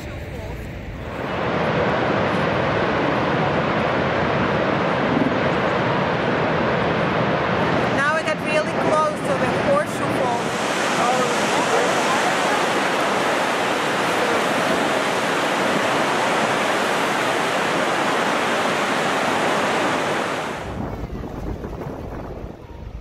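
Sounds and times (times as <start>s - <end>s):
low rumble: 0.0s - 8.0s, 20.5s - 23.0s
waterfall rushing: 7.7s - 20.9s.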